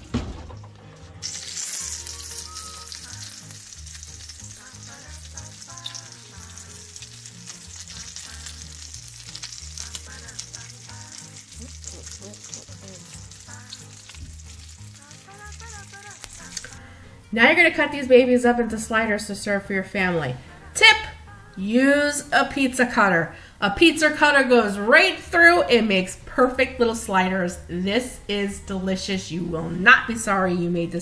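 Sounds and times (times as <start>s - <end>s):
soft music: 0.0s - 31.0s
butter sizzling in metal pan: 0.6s - 16.8s.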